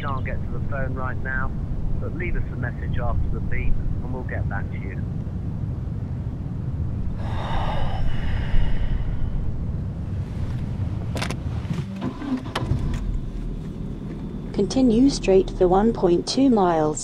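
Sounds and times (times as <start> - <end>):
car cabin low rumble: 0.0 - 17.0
breathy hiss: 7.2 - 9.5.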